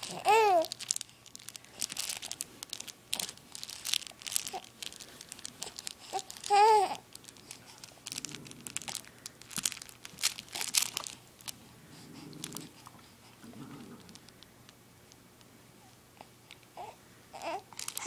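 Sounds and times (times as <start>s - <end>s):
baby cooing: 0.0s - 0.8s, 5.6s - 7.0s, 16.8s - 17.8s
crinkly fabric toy rustling: 0.0s - 12.9s, 13.5s - 14.4s, 17.4s - 18.0s.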